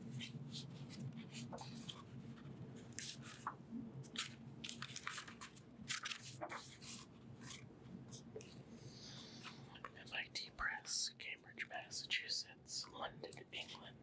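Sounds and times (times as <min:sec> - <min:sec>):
book pages rustling and turning: 0:00.0 - 0:10.0.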